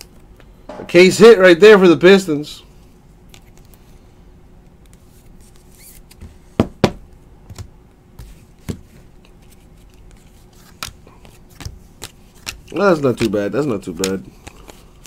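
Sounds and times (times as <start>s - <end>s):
cards and plastic sleeves rustling: 7.5s - 15.0s.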